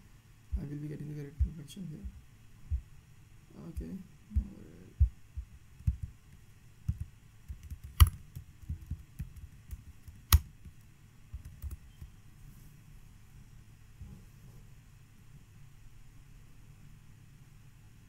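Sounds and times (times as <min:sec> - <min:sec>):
computer mouse clicks: 0:06.9 - 0:12.1.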